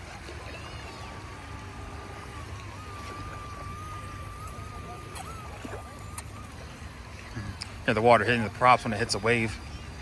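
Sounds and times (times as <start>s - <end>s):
toy plane motors whining: 0.1s - 8.5s.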